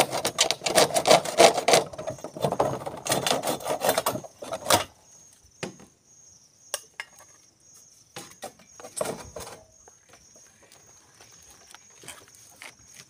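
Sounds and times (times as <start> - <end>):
hacksaw cutting gutter: 0.0 - 4.9
high insect trill: 0.0 - 13.0.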